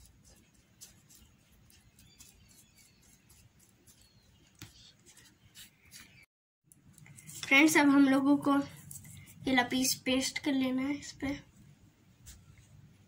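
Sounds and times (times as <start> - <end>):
paintbrush scratching on paper: 0.0 - 6.2.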